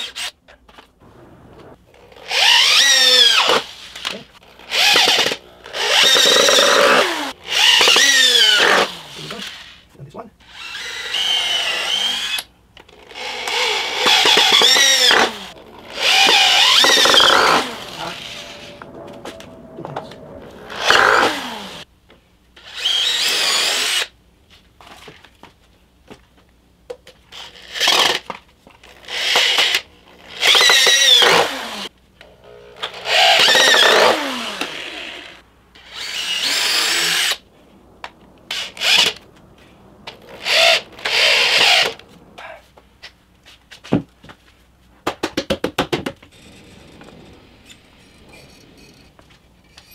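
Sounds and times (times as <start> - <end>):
power drills boring into wood: 2.0 - 3.7, 4.4 - 9.6, 10.5 - 18.7, 20.6 - 21.8, 29.0 - 37.4, 40.3 - 42.0.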